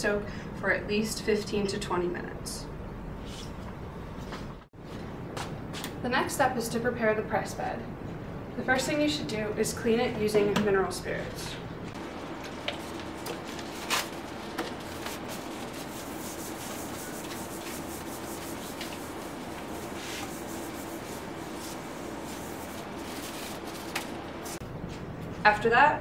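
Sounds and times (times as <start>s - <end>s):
paper towel scrubbing metal: 12.0s - 24.6s.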